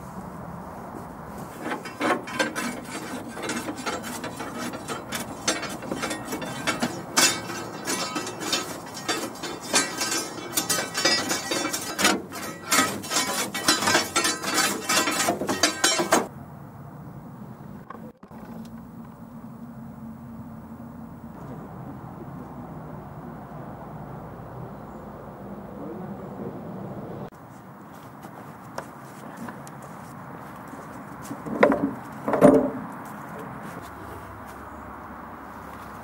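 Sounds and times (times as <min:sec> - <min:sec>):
metal tool scraping firebox grate: 0:01.5 - 0:16.3.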